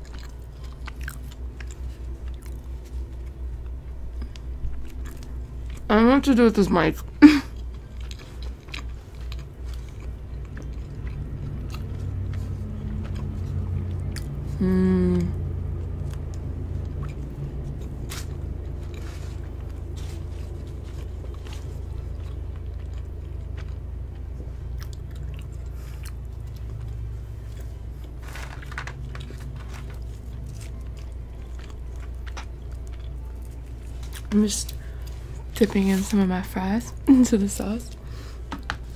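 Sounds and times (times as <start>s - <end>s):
chewing and biting food: 0.0s - 5.9s, 7.4s - 36.4s
person humming: 14.5s - 15.5s.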